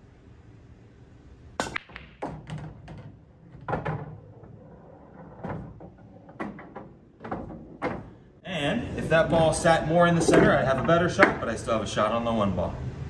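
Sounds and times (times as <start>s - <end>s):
cue ball cracking into racked balls: 1.6s - 8.3s, 10.2s - 11.6s
billiard balls clacking: 1.6s - 8.4s, 9.0s - 11.8s.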